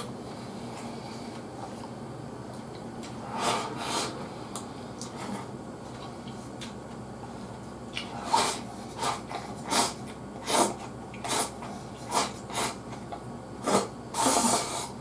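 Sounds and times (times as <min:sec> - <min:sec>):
person slurping noodles: 0:03.2 - 0:04.4, 0:08.1 - 0:12.8, 0:13.6 - 0:15.0.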